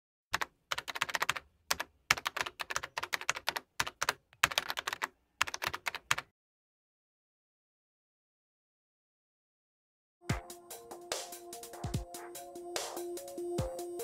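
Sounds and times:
keyboard typing clicks: 0.3 - 6.3.

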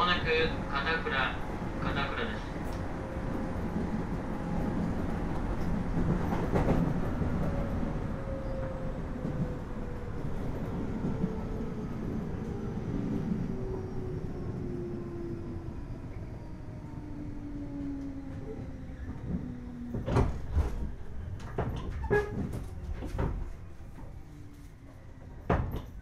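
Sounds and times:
train wheel and rail rumble: 0.0 - 26.0.

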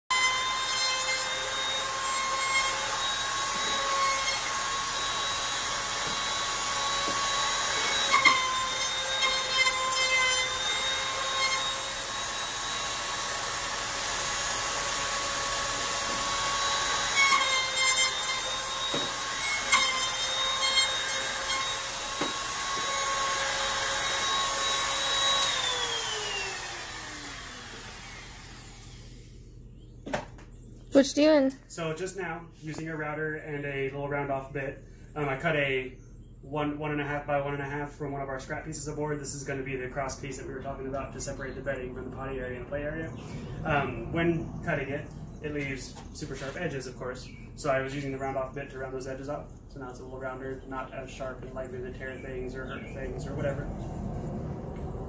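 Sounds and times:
router spinning down: 0.1 - 29.3
wood router whining: 0.1 - 29.6.

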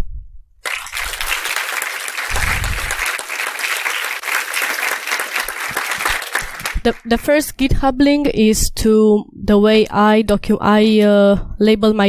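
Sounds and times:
audience applauding: 0.6 - 7.1.

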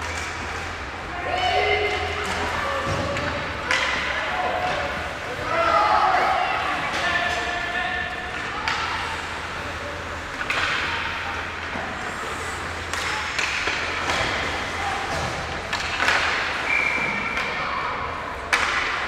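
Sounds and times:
low arena hum: 0.0 - 19.0
hockey sticks and puck knocking: 2.2 - 5.0, 8.3 - 9.1, 10.2 - 17.6, 18.4 - 19.0
skate blades scraping ice: 11.1 - 17.2.

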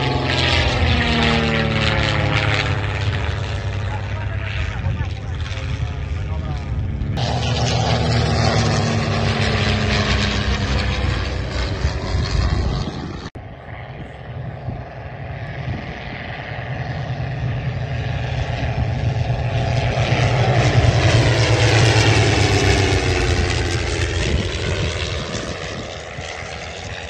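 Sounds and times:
propeller aircraft droning past: 0.0 - 27.0.

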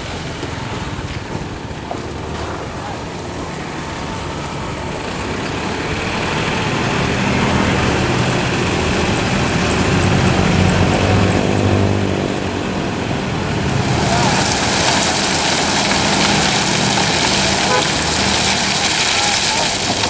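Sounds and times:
diesel truck engine revving: 0.0 - 20.0.

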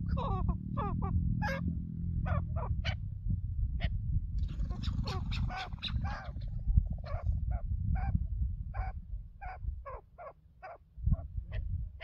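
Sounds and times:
partridges calling: 4.4 - 8.1.

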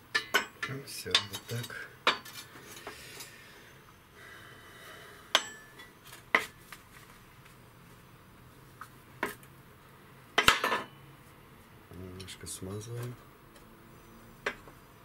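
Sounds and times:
metal tools clinking: 0.2 - 3.4.

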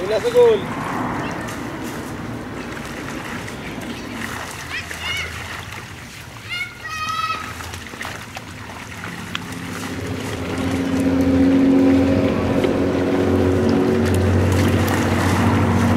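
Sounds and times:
motor engine running: 8.7 - 15.9.

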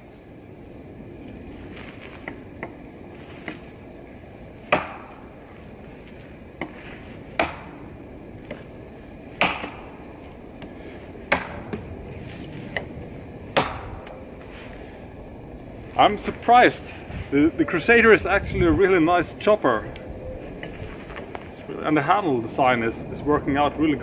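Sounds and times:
knife chopping a log: 4.7 - 5.2, 7.4 - 7.8, 9.4 - 9.9, 11.3 - 11.9, 13.6 - 14.2.

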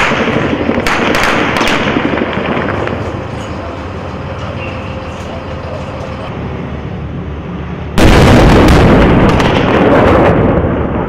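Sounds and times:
rapid sharp cracks: 0.0 - 3.5
tank diesel engine rumbling: 0.0 - 11.0.

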